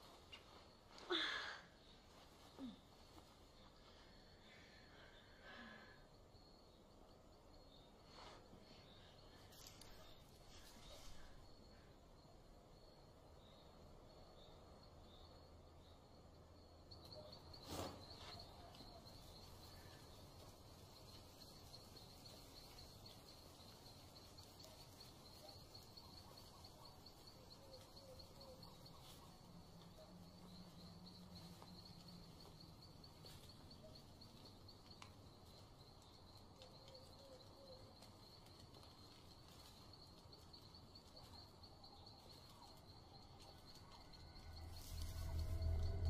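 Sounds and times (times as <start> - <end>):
insects trilling: 0.0 - 46.0
low hum: 44.2 - 46.0.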